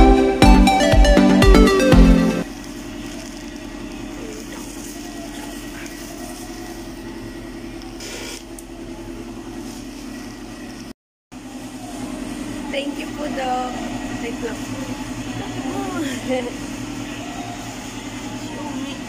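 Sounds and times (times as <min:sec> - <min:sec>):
music: 0:00.0 - 0:02.5
low mechanical hum: 0:02.4 - 0:19.0.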